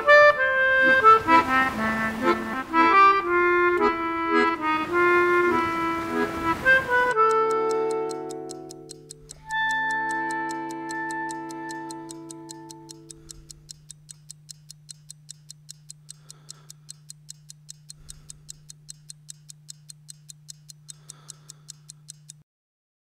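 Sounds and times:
held music chord: 0.0s - 13.2s
steady ticking: 0.0s - 22.4s
low steady hum: 7.9s - 22.4s.

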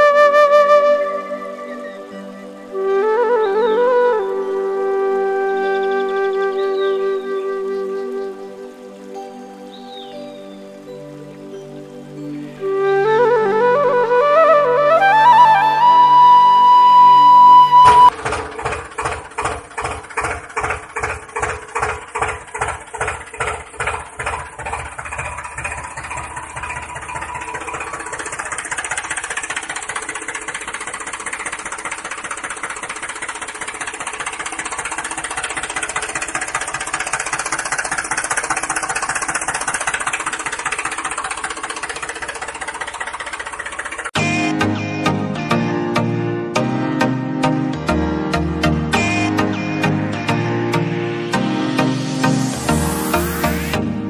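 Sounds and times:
tractor engine chugging: 15.0s - 54.0s.

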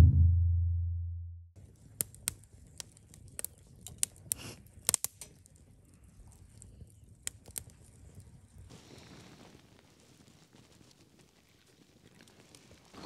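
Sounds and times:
sharp clicks and crackles: 1.6s - 8.6s.

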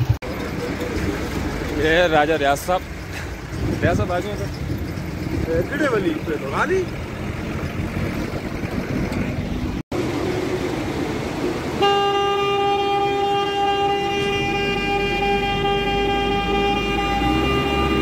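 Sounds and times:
vehicle running noise: 0.0s - 18.0s
vehicle horn long blast: 11.8s - 18.0s.

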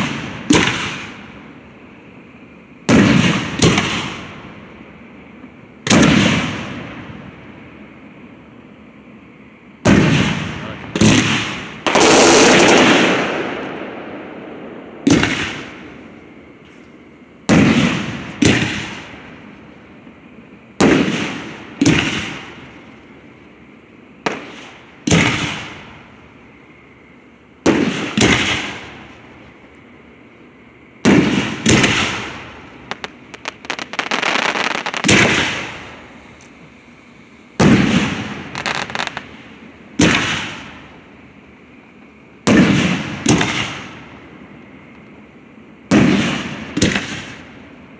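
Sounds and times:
fireworks shells bursting: 11.0s - 13.8s, 31.1s - 36.5s, 37.6s - 39.4s
crackling pops: 32.8s - 35.8s, 37.6s - 39.3s.

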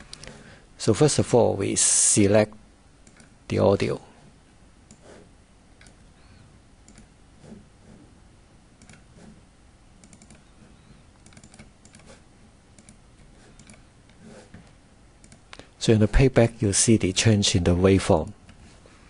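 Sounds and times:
mouse and keyboard clicks: 3.0s - 3.3s, 5.8s - 6.0s, 6.9s - 7.1s, 8.8s - 9.1s, 10.0s - 10.5s, 11.2s - 12.2s, 12.8s - 13.9s, 15.2s - 15.6s.

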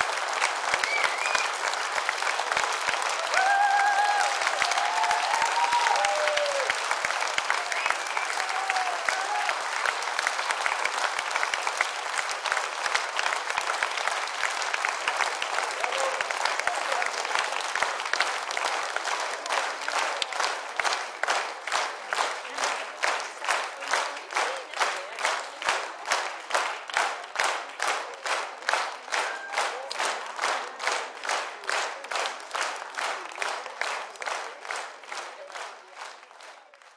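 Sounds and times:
audience applauding: 0.0s - 36.9s
rhythmic clapping in unison: 0.0s - 36.9s
cheers and shouts: 3.1s - 9.8s.

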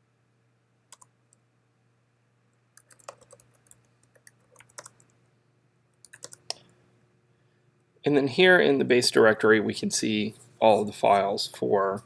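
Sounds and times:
faint steady hum: 0.0s - 12.0s
typing on computer keyboard: 2.8s - 5.1s, 6.0s - 6.6s.

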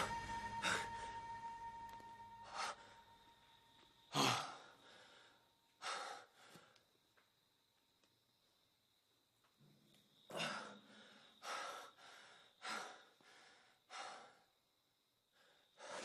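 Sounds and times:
song: 0.0s - 3.8s
man breathing hard and gasping: 4.2s - 6.8s, 10.3s - 14.5s.

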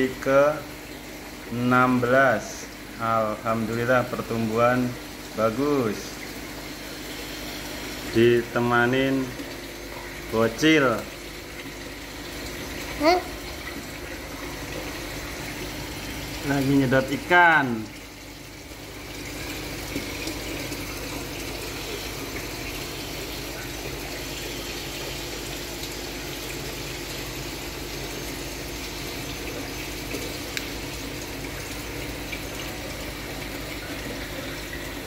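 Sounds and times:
water running through hose: 0.0s - 35.0s.

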